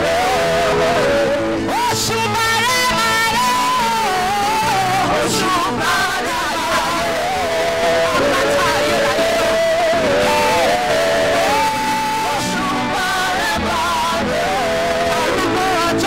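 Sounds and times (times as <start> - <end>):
group singing a gospel song: 0.0 - 16.0.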